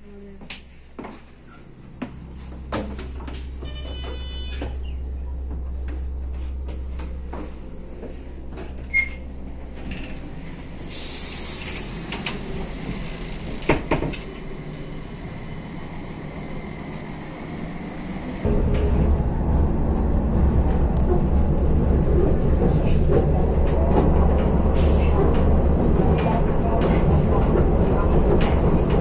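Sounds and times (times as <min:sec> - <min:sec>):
train carriage rumble: 0:00.0 - 0:29.0
short electronic beep: 0:03.6 - 0:04.6.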